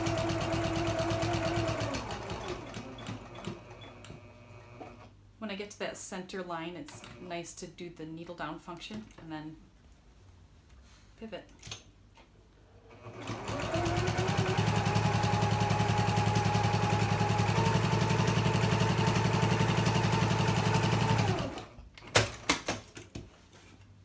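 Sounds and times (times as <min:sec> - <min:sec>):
sewing machine stitching: 0:00.0 - 0:05.1, 0:12.9 - 0:21.8.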